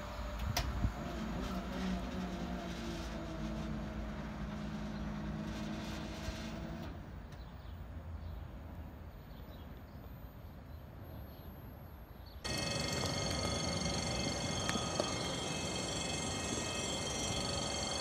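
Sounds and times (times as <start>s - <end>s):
train electric hum: 0.0s - 7.4s, 12.4s - 18.0s
train track noise: 12.4s - 18.0s
train rumbling: 12.5s - 18.0s.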